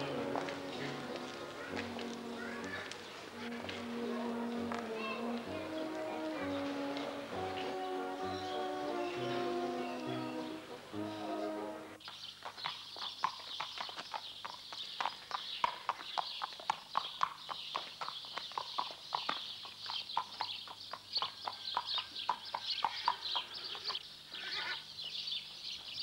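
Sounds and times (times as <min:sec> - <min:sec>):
horse hooves clip-clopping on paving: 0:00.0 - 0:09.5, 0:12.0 - 0:24.0
steady high hiss: 0:00.0 - 0:12.0.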